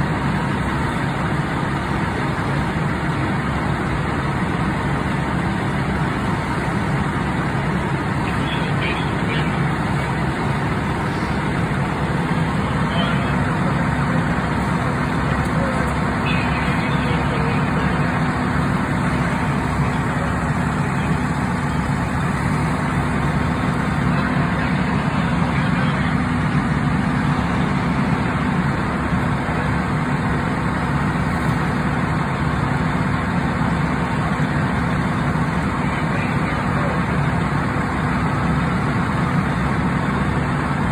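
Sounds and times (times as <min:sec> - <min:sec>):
diesel engine running steadily: 0:00.0 - 0:40.9
faint voices: 0:06.0 - 0:31.1, 0:33.2 - 0:39.4.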